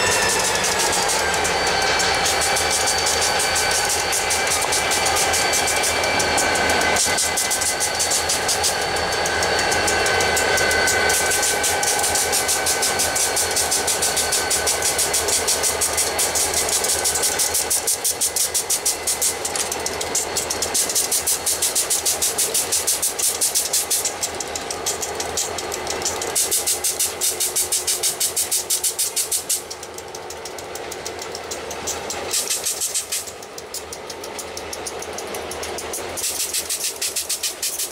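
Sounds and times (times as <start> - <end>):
thin high tone: 0.0 - 25.6
diesel freight train passing: 0.0 - 37.9
regular pulsing wheel clatter: 0.0 - 37.9.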